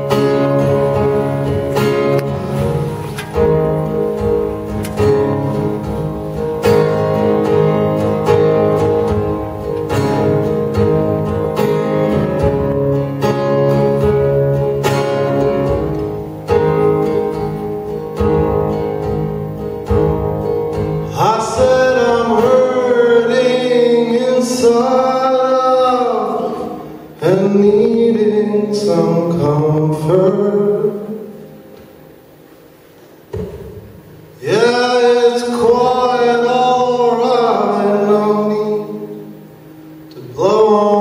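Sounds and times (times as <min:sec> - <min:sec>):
acoustic guitar strumming: 0:00.0 - 0:41.0
man singing: 0:21.0 - 0:31.4, 0:34.4 - 0:39.3, 0:40.1 - 0:41.0.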